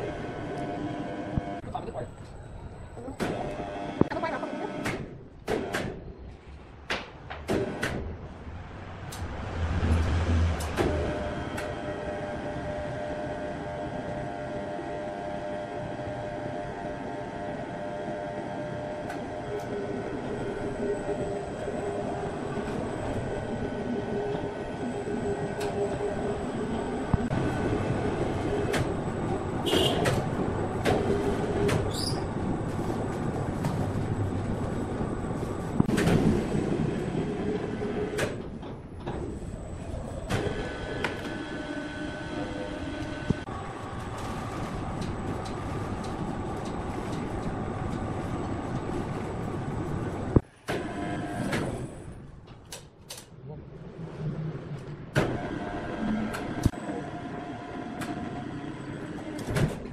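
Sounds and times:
sawmill machinery drone: 0:00.0 - 0:05.0, 0:08.6 - 0:52.2, 0:53.8 - 0:59.9
metallic squeals: 0:31.9 - 0:32.4.

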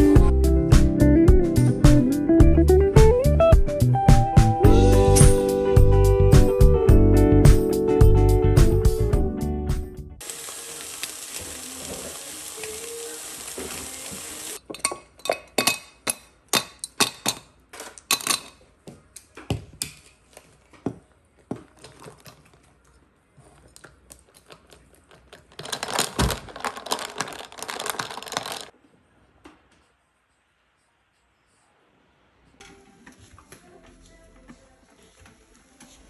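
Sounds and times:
meat sizzling in a pan: 0:10.2 - 0:14.6.

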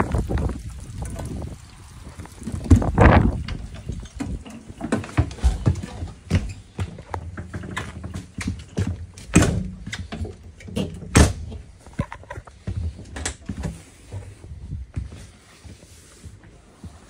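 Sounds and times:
footsteps on floor: 0:11.8 - 0:17.0.

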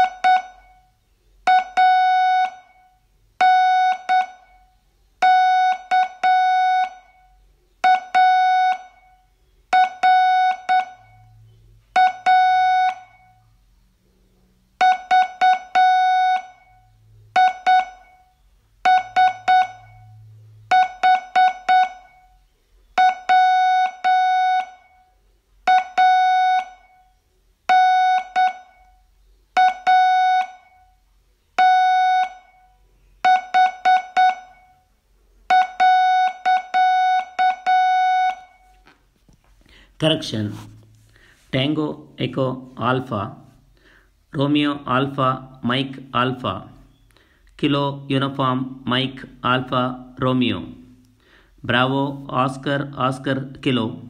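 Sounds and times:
morse code tone: 0:00.0 - 0:13.4, 0:14.8 - 0:22.4, 0:23.0 - 0:27.1, 0:27.7 - 0:29.0, 0:29.6 - 0:31.0, 0:31.6 - 0:34.9, 0:35.5 - 0:38.8.

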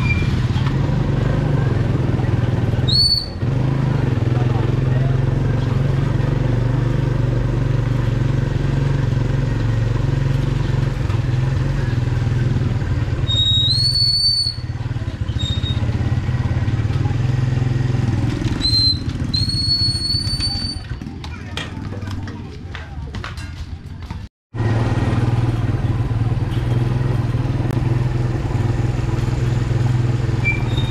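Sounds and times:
motorcycle engine running: 0:00.0 - 0:30.9
high whistling tone: 0:02.8 - 0:03.4, 0:13.2 - 0:14.7, 0:18.6 - 0:20.9.

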